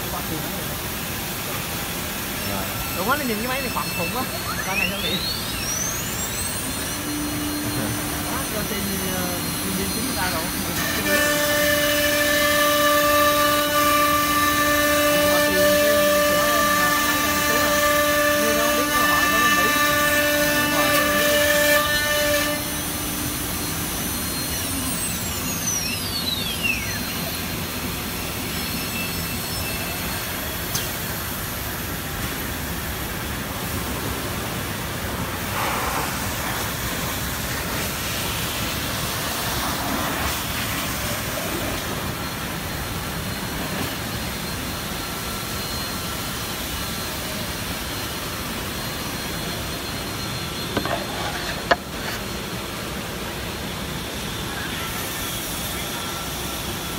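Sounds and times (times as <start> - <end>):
spindle whining and winding down: 2.3 - 30.6
dust extraction air rushing: 32.8 - 54.3.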